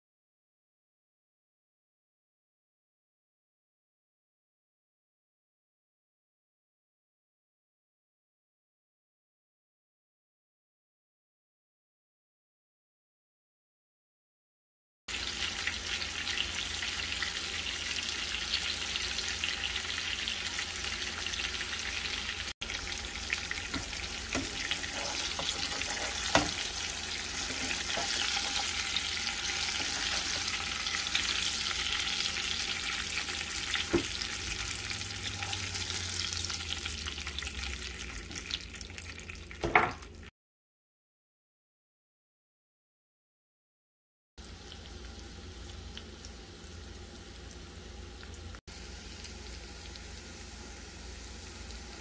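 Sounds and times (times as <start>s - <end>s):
liver sizzling in oil: 15.1s - 40.3s, 44.4s - 52.0s.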